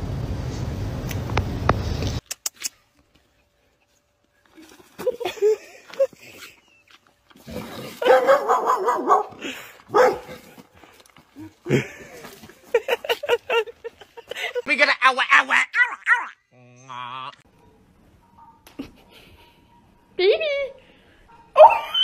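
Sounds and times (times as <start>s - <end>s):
puppy yapping: 8.0s - 9.4s, 21.5s - 22.0s.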